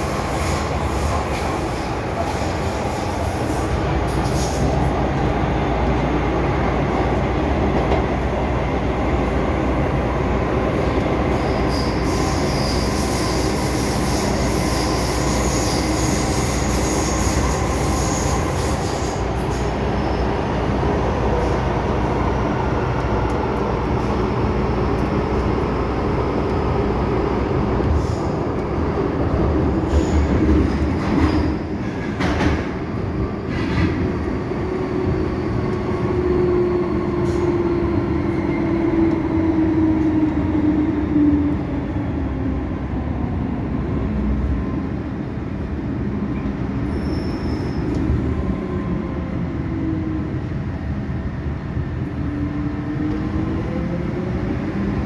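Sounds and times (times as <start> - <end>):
high-pitched wheel squeal: 11.4 - 20.3, 46.8 - 48.0.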